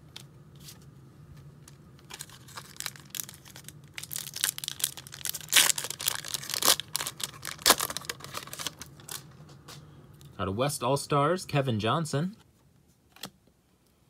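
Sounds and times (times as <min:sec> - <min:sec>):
foil wrapper tearing and crinkling: 0:02.0 - 0:09.2.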